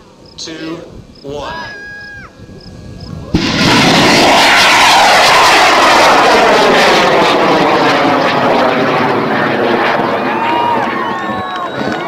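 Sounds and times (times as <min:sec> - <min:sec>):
rocket ignition crack: 0:03.3 - 0:12.0
rocket motor roaring: 0:03.3 - 0:12.0.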